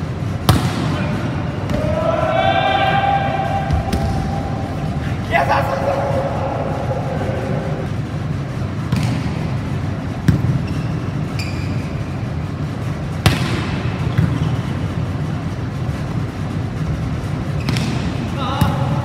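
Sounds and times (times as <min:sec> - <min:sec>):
volleyball smacks: 0:00.4 - 0:01.0
shoes squeaking on court floor: 0:10.4 - 0:12.3, 0:14.0 - 0:15.0.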